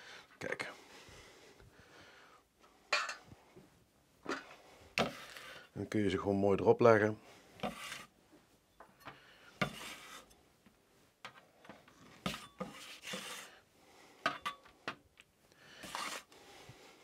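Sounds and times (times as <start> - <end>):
metal spatula scraping paper: 5.0 - 5.6, 7.6 - 8.2, 9.6 - 10.4, 12.1 - 13.6, 15.8 - 16.3.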